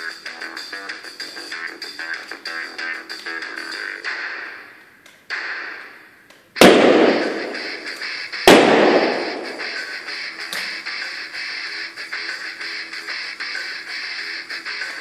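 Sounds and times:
balloons bursting with echo: 6.6 - 10.8.

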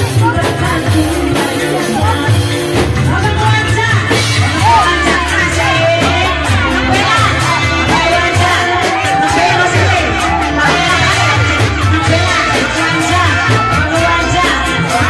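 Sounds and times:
loud live band music: 0.0 - 15.0
steady drum beat: 0.0 - 15.0
woman singing into a microphone: 0.0 - 15.0.

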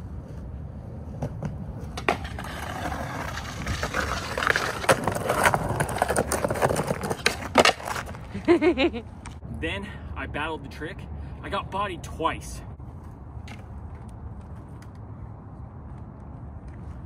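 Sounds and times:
skateboard wheels rolling on concrete: 0.0 - 9.4, 11.5 - 17.0
skateboard clacks: 1.2 - 8.2
skateboard grinding on ledge: 1.2 - 8.2.

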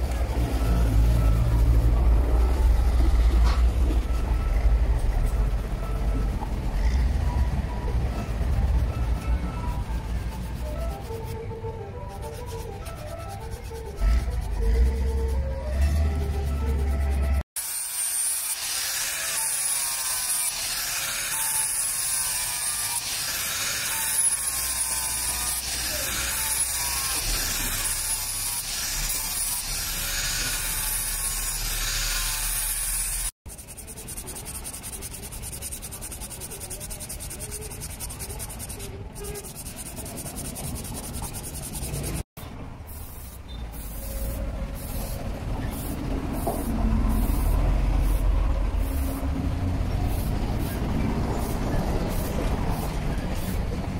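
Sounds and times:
angle grinder sanding steel: 12.0 - 42.3.

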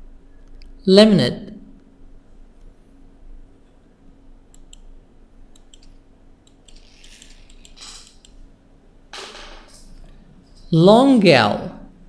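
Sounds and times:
faint steady hum: 0.0 - 12.0
computer mouse clicking: 4.5 - 8.4.

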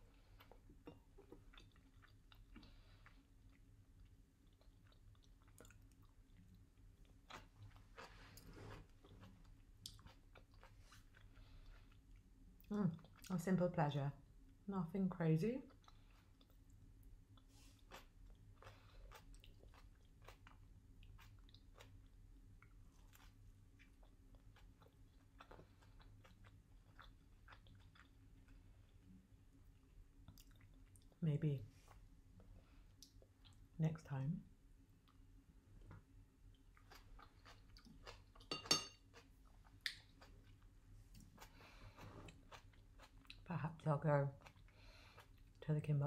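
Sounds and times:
low steady hum: 0.0 - 46.0
person chewing and crunching: 0.1 - 13.3, 15.7 - 31.2, 35.0 - 43.5
wet mouth clicks chewing: 39.2 - 40.6.

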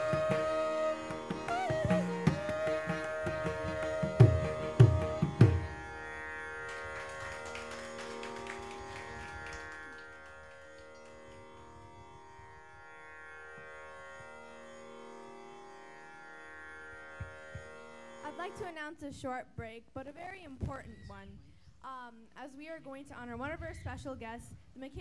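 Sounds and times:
bamboo flute long note: 0.0 - 11.2
violin: 0.0 - 18.7
drum strokes: 1.5 - 5.8.

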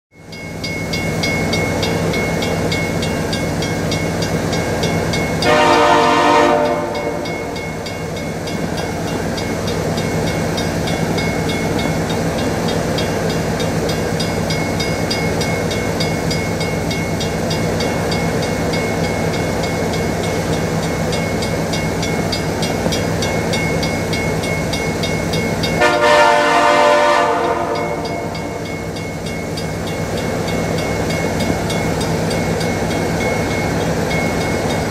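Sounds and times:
train horn blasts: 5.4 - 7.6, 25.8 - 28.6.

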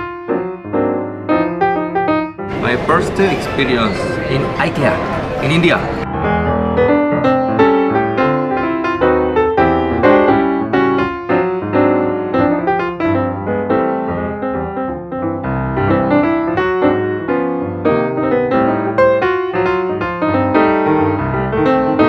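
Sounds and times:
lively piano music: 0.0 - 22.0.

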